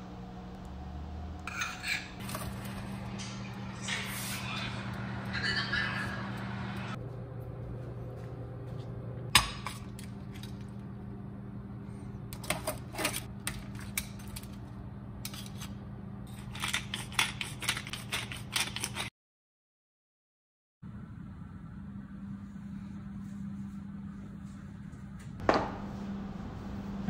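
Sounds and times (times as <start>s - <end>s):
steady low hum: 0.0s - 18.0s, 20.8s - 27.0s
kitchen clicks and scrapes: 12.4s - 14.6s, 15.2s - 19.1s
pepper grinder grinding: 15.2s - 19.1s.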